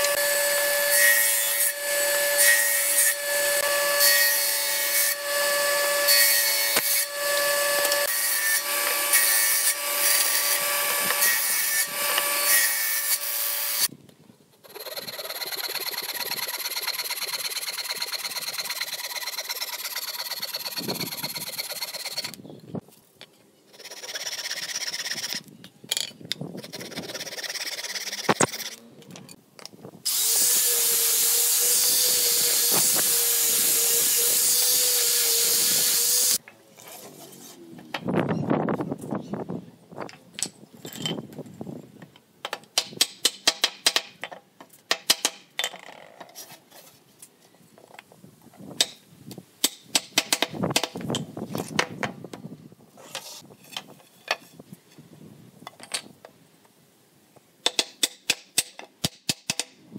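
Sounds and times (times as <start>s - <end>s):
scraping and rubbing: 14.6s - 22.4s, 53.0s - 55.0s.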